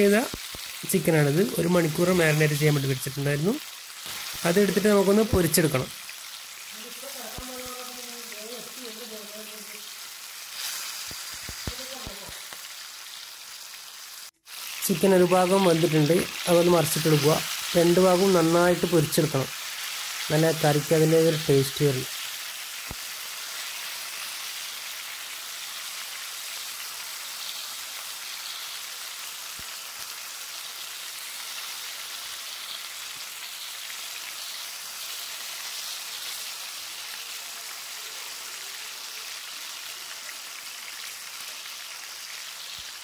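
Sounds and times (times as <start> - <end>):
chicken sizzling in hot oil: 0.0 - 43.0.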